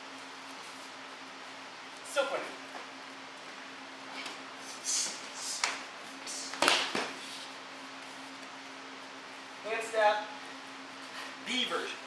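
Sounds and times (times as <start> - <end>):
short hissing bursts: 4.6 - 5.6.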